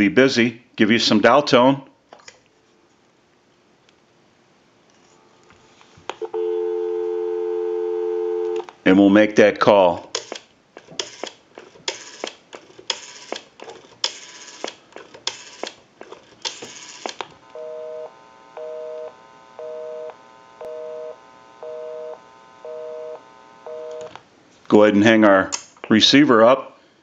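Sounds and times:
telephone busy signal: 0:06.2 - 0:08.6, 0:17.5 - 0:24.1
rotary dial turning: 0:10.2 - 0:17.2.

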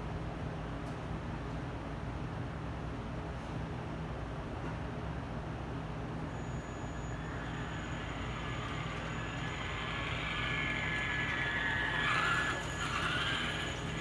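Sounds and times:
steady low hum: 0:00.0 - 0:14.0
toy truck electric motor whine: 0:06.4 - 0:14.0.

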